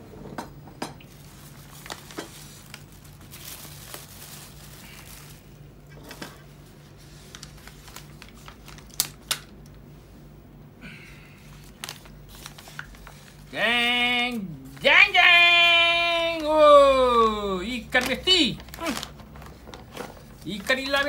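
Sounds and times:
paper wrapper crinkling: 1.1s - 9.9s, 11.4s - 21.0s.

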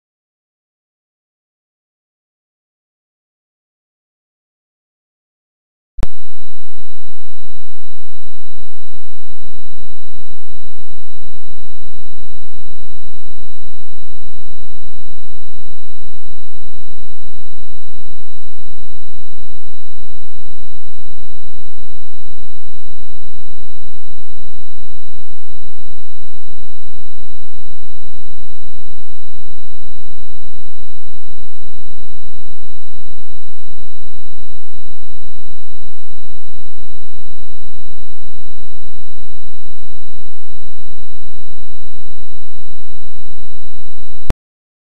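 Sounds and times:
harsh distorted buzz: 6.0s - 44.3s.

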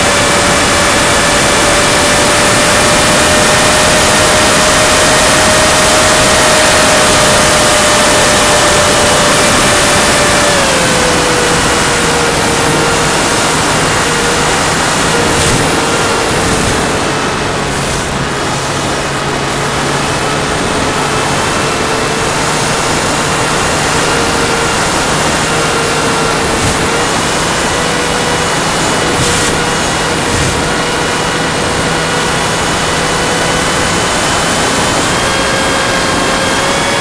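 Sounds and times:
electric motor whine: 0.0s - 37.0s
rush of air on microphone: 11.6s - 19.1s, 24.8s - 31.5s.

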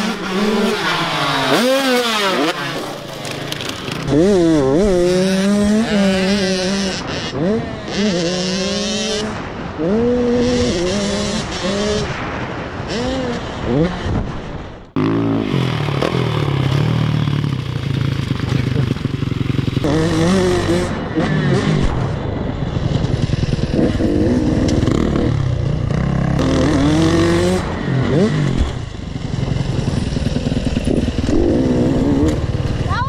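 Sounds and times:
dirt bike engine revving: 0.0s - 12.2s, 15.0s - 33.0s.

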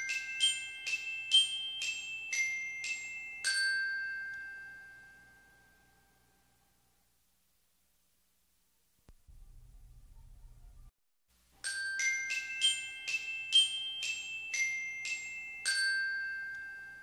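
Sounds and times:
bell-like chime jingle: 0.0s - 6.6s, 11.6s - 17.0s.

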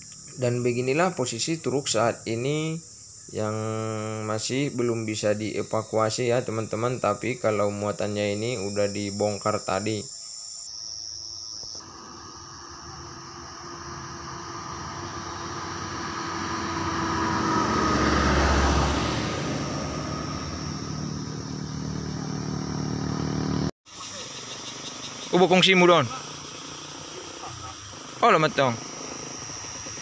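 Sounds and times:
crickets chirring: 0.0s - 30.0s
truck passing: 11.8s - 30.0s.

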